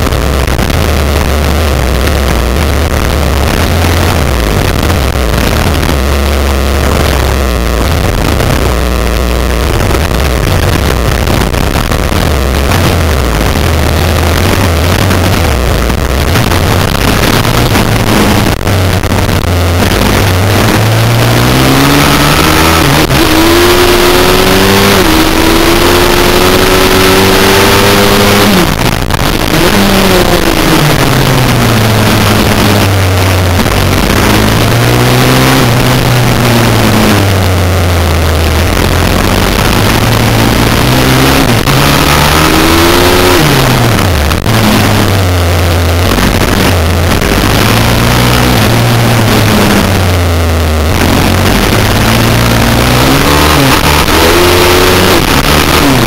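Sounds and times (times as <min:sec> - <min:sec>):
motorbike engine revving: 0:00.0 - 0:56.0
wind noise on microphone: 0:00.0 - 0:56.0.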